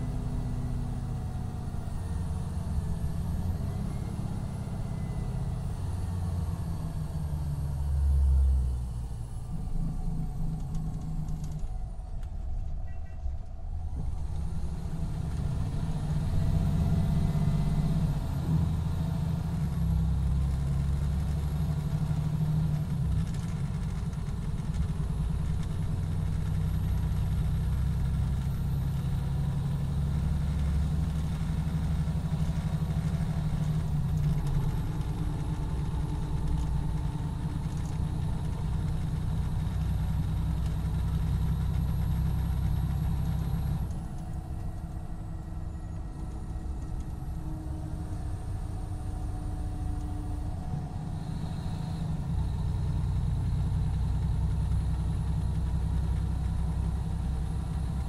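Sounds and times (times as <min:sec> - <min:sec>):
diesel engine idling: 0:13.6 - 0:58.0.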